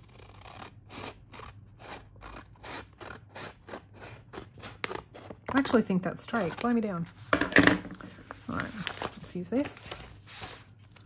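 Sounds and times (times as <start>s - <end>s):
scissors cutting paper: 0.0s - 6.8s.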